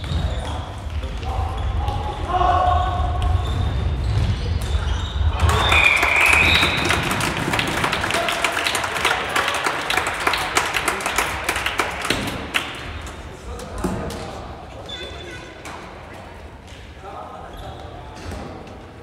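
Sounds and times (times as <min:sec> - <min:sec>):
rapid clapping: 0:05.4 - 0:13.2.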